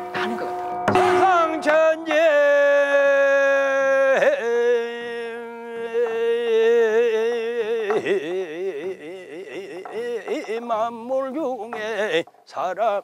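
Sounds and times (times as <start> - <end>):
man chanting: 0.9 - 13.0.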